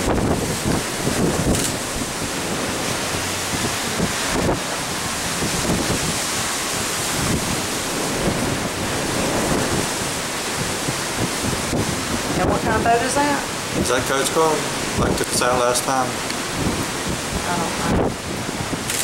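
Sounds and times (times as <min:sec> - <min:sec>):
rough sea rushing: 0:00.0 - 0:19.0
wind buffeting microphone: 0:00.0 - 0:19.0.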